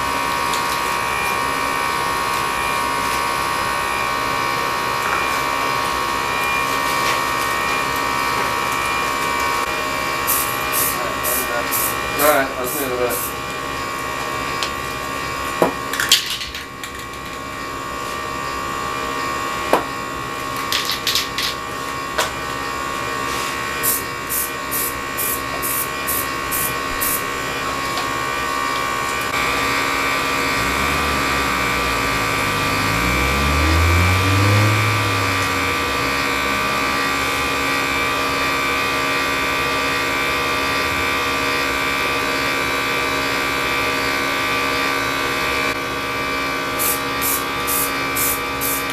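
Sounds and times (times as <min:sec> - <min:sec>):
spray paint can hissing: 0:10.3 - 0:12.0, 0:12.7 - 0:13.3, 0:23.8 - 0:27.2, 0:46.8 - 0:48.9
low engine-like sound: 0:29.0 - 0:44.0
steady hum: 0:29.1 - 0:42.2.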